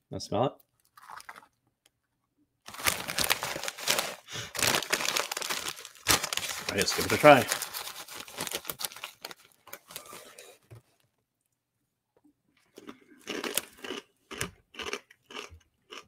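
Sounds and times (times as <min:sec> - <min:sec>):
plastic snack bag rustling: 0:00.6 - 0:01.6, 0:02.7 - 0:10.5
dry noodles crunching: 0:00.8 - 0:01.6, 0:02.7 - 0:10.1, 0:12.8 - 0:16.0.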